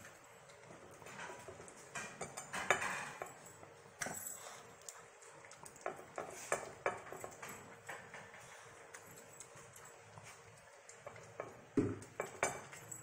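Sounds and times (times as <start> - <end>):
ceramic plate clinking on tile: 1.9 - 4.2, 11.0 - 13.0.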